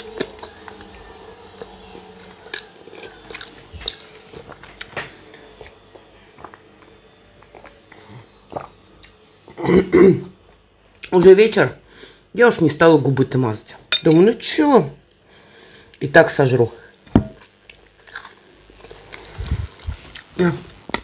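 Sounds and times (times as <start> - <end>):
person chewing food: 0.0 - 9.6, 17.4 - 20.3.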